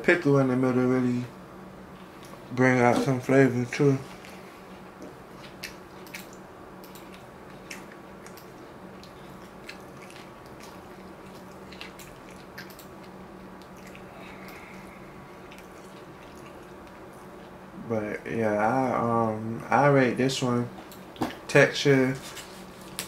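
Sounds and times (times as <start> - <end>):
steady low hum: 0.0 - 23.0
man chewing wetly: 4.1 - 17.8.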